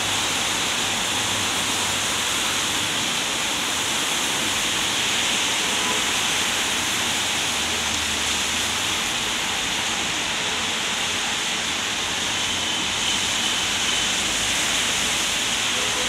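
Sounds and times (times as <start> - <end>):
rain falling on pavement: 0.0 - 16.0.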